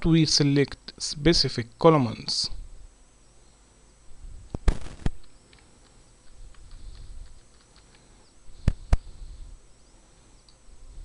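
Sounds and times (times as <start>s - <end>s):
mouse clicks: 4.5s - 8.0s.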